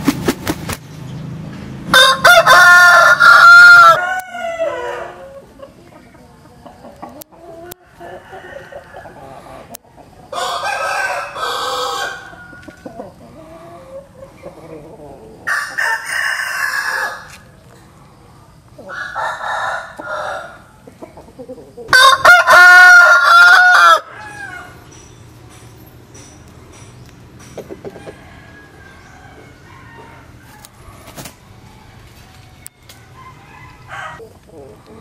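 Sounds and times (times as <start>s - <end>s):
rooster crowing: 1.9s - 5.6s, 7.6s - 9.7s, 10.3s - 14.1s, 15.4s - 17.5s, 18.8s - 20.8s, 21.9s - 24.9s, 27.7s - 34.7s.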